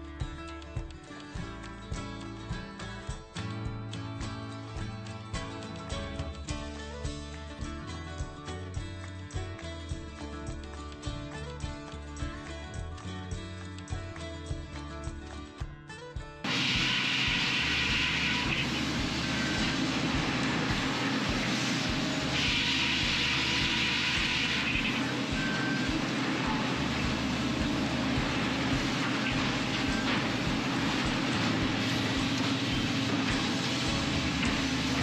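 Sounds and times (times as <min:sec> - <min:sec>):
high saw whine: 0:16.4 - 0:35.0
mill machinery din: 0:16.4 - 0:35.0
circular saws cutting log: 0:16.5 - 0:35.0.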